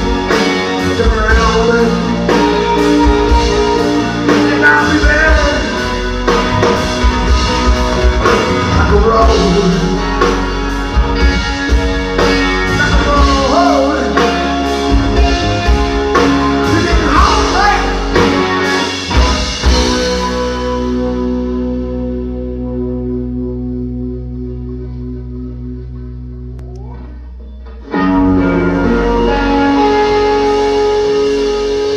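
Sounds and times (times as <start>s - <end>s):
drum kit beat: 0.0s - 20.8s
bass guitar: 0.0s - 31.9s.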